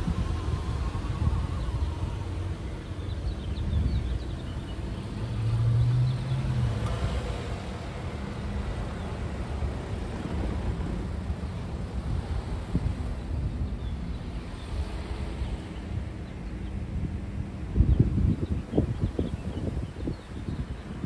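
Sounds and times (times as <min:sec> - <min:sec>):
car driving past: 0:00.0 - 0:12.9
wind on microphone: 0:00.0 - 0:21.0.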